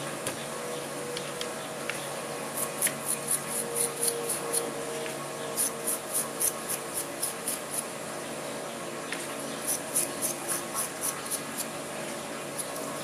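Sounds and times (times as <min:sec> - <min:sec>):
toothbrush scrubbing metal parts: 0:09.7 - 0:11.7.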